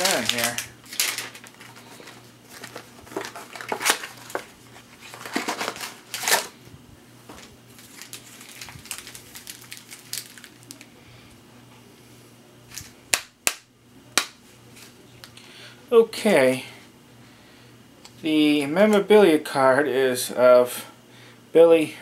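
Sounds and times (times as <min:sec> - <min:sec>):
packaging rustling and crinkling: 0:00.0 - 0:06.6, 0:07.2 - 0:10.9.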